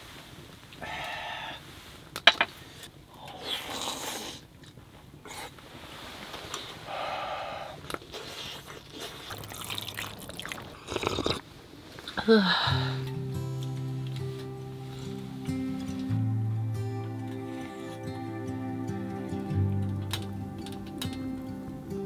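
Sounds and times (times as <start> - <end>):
slurping broth: 7.7 - 11.5
chewing: 7.8 - 11.4.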